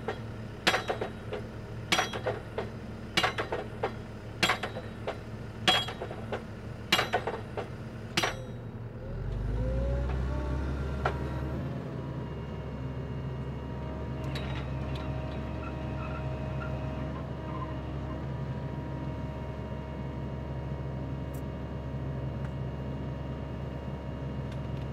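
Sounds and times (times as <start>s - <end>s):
metal clanks of steel tooling: 0.0s - 8.6s
drill rig engine and hydraulics: 0.0s - 11.8s, 13.8s - 18.3s.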